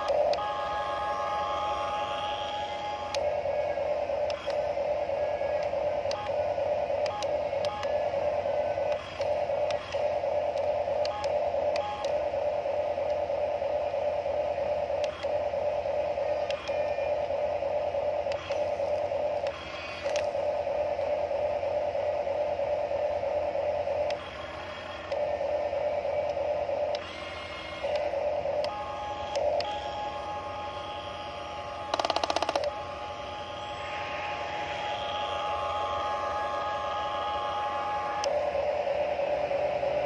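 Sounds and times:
sharp clicks: 0:31.9 - 0:32.8.

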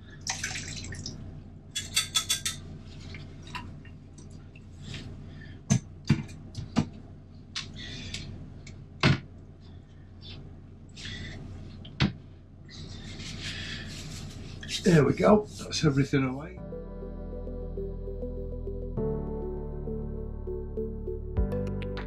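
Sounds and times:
water splashing into a metal sink: 0:00.2 - 0:01.2.

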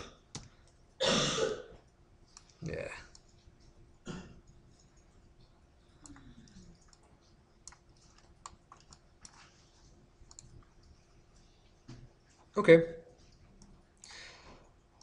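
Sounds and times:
low room hum: 0:00.0 - 0:15.0
mouse and keyboard clicks: 0:06.0 - 0:09.5, 0:10.2 - 0:11.0.

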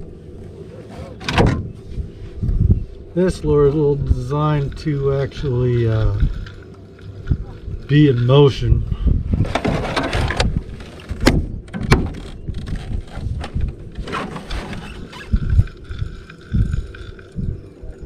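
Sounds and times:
faint steady whine: 0:00.0 - 0:18.0
fishing reel cranking: 0:04.2 - 0:08.4, 0:14.8 - 0:18.0.

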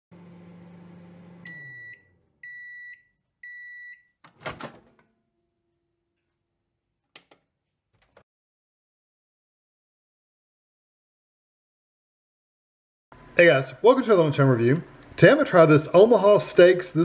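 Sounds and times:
microwave oven humming: 0:00.1 - 0:02.7
microwave timer beeps: 0:01.2 - 0:04.2.

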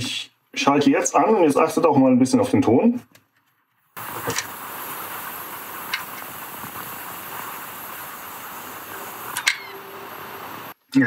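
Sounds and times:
steady hiss: 0:04.0 - 0:11.0.

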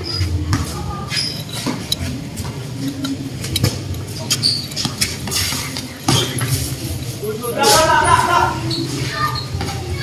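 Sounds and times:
sneaker squeaks on court floor: 0:00.0 - 0:01.9, 0:03.7 - 0:06.6, 0:08.6 - 0:10.0.

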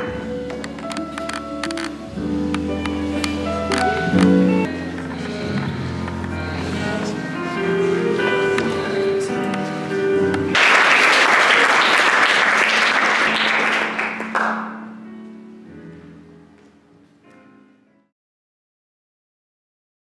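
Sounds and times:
plucked-string background music: 0:00.0 - 0:10.6
loud applause: 0:10.5 - 0:14.8.

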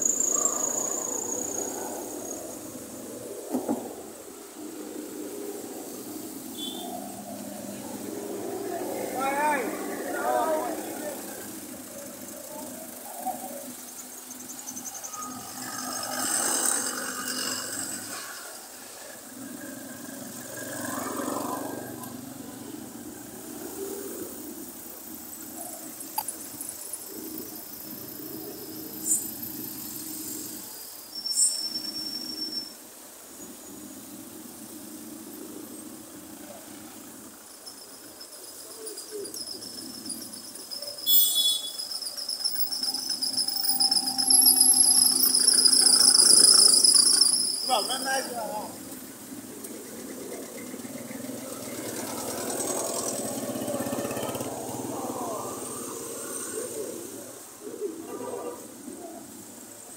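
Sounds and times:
thin steady high tone: 0:00.0 - 0:03.4, 0:05.3 - 0:22.9, 0:23.7 - 0:33.8, 0:36.4 - 0:59.9
car engines in slow traffic: 0:00.0 - 0:31.9, 0:32.9 - 0:40.9, 0:48.1 - 0:59.9
short high-pitched chirps: 0:40.8 - 0:47.9
motorcycle engine running: 0:48.8 - 0:55.9.

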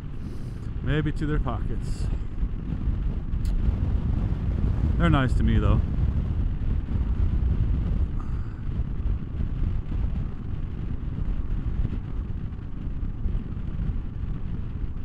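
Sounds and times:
motorcycle engine running: 0:00.0 - 0:15.0
wind rushing over microphone: 0:00.0 - 0:15.0.

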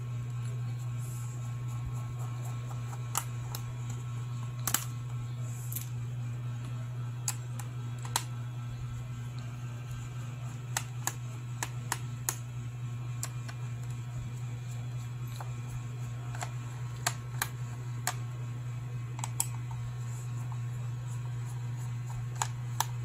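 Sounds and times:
steady low hum: 0:00.0 - 0:23.0
plastic clips clicking and snapping: 0:04.6 - 0:04.9.

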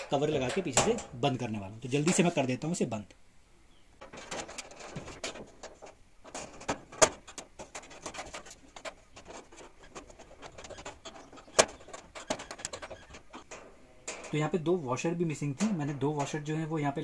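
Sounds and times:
screwdriver scraping sheet metal: 0:04.2 - 0:14.3.

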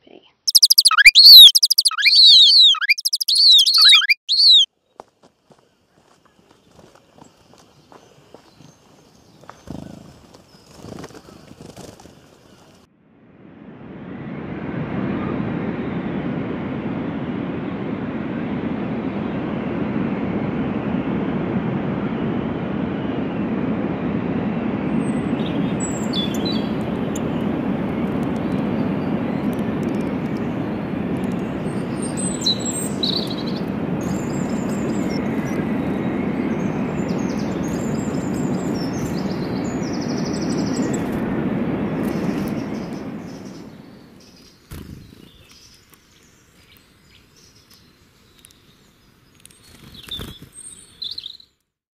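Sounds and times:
birds chirping: 0:00.5 - 0:04.7, 0:25.1 - 0:41.2, 0:41.9 - 0:51.4
low city rumble: 0:03.2 - 0:51.4.

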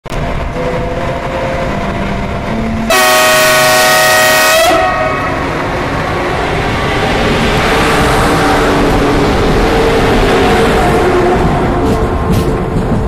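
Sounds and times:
train running noise: 0:00.0 - 0:13.0
train air horn blast: 0:02.9 - 0:05.7.

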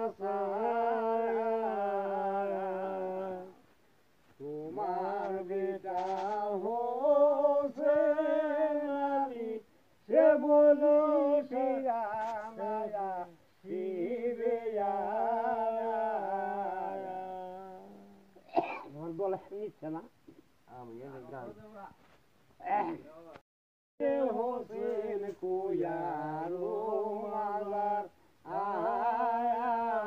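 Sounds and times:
man singing unaccompanied: 0:00.0 - 0:03.7, 0:04.3 - 0:18.4, 0:24.0 - 0:30.0.

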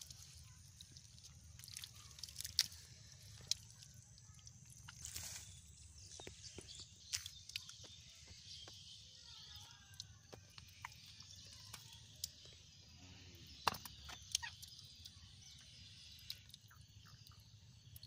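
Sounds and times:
mud squelching and sloshing: 0:00.0 - 0:08.5.

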